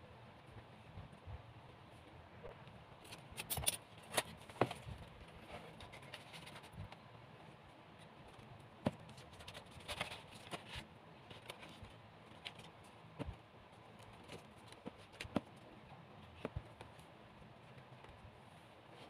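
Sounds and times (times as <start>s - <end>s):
light knocks and clicks of craft parts: 8.0s - 18.3s.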